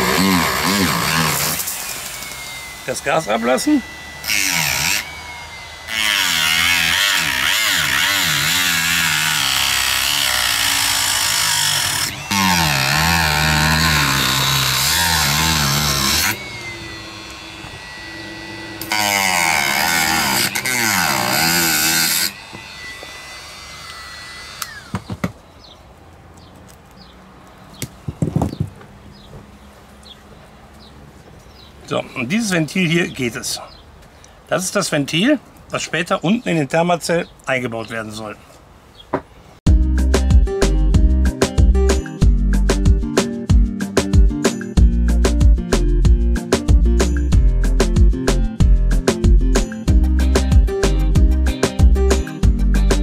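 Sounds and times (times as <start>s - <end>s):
rotary tool cutting plastic: 0.0s - 25.3s
rotary tool high whine: 0.0s - 25.3s.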